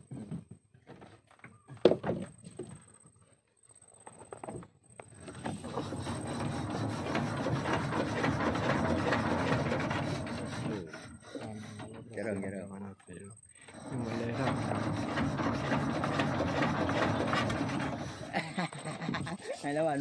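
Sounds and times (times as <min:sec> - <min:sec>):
rubbing crackling noise: 0:05.5 - 0:12.3, 0:13.8 - 0:19.2.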